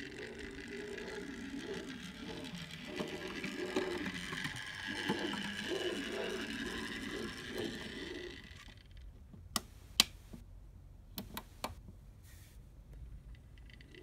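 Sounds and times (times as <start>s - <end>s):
model railcar motor whining: 0.0s - 9.0s.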